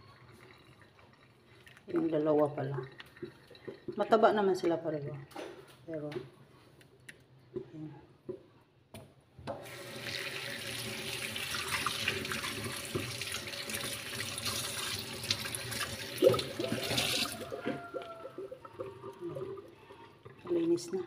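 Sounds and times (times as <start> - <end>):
water running into steel sink: 9.6 - 21.0.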